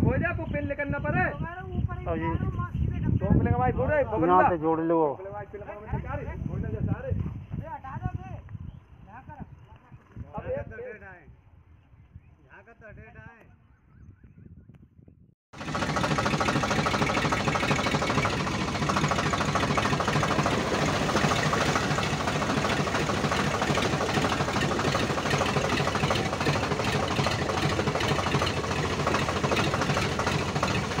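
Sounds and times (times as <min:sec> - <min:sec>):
tractor diesel engine chugging: 0:15.6 - 0:31.0.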